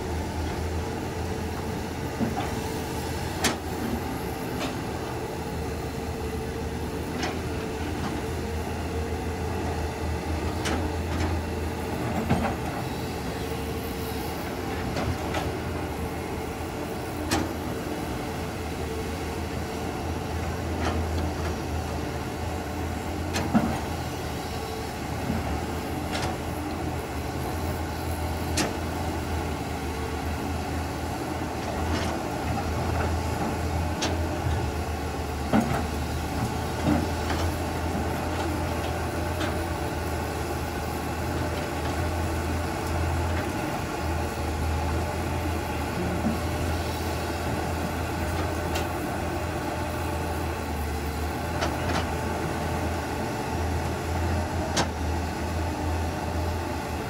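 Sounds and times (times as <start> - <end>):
bulldozer diesel engine running: 0.0 - 57.0.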